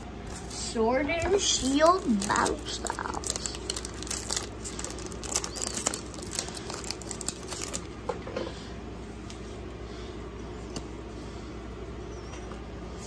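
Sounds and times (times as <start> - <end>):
cards rustling out of pack: 0.3 - 8.0
foil wrapper crinkling and tearing: 0.3 - 8.0.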